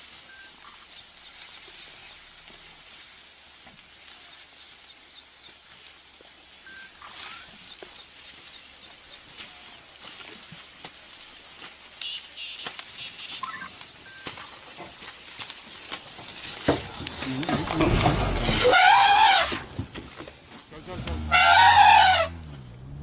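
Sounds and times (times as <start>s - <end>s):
sharp snaps and crackles: 0.0s - 2.8s, 5.4s - 18.9s
high chirps: 12.0s - 14.3s.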